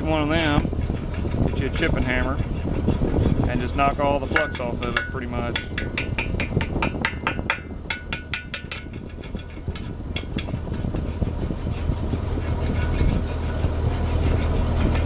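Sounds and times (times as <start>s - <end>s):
scraping: 0.0s - 15.0s
hammer tapping on metal rod: 4.3s - 9.0s.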